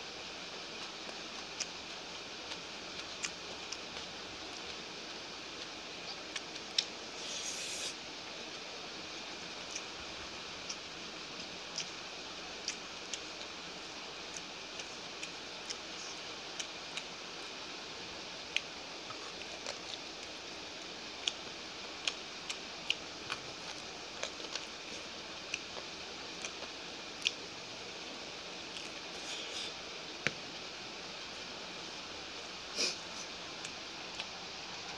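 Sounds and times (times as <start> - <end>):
steady hiss: 0.0 - 34.9
wet chewing and finger clicks: 25.5 - 27.4.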